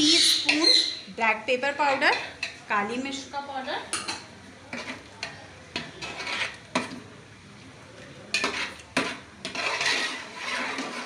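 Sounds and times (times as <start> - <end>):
metal spoon scraping pot: 0.0 - 1.0, 4.7 - 5.1, 5.8 - 7.0, 8.3 - 11.0.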